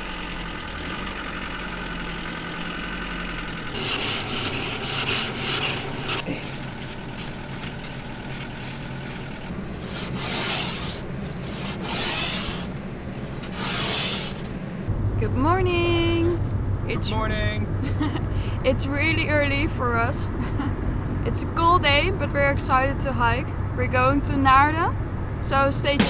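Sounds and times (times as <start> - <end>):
low engine hum: 0.0 - 26.0
uneven rubbing and rustling: 3.8 - 14.6.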